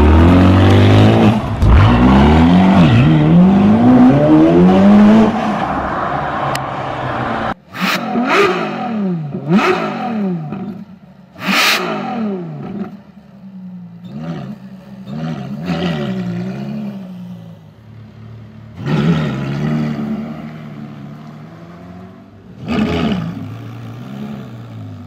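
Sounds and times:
sports car engine revving: 0.0 - 5.6, 6.4 - 17.3.

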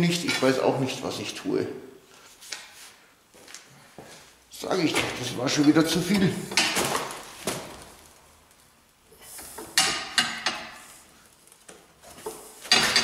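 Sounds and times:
steel strip clanking against vise: 12.7 - 13.0.

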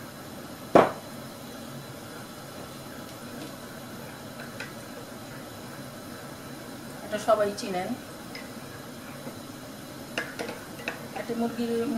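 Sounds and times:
patties frying in pan: 0.0 - 11.9
ceramic mug set down on worktop: 0.8 - 1.0.

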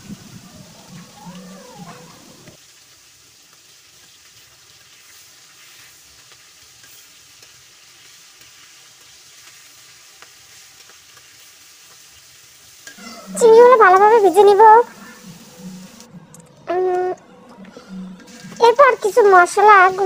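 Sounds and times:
prawns sizzling in hot oil: 0.0 - 16.1, 18.2 - 20.0.

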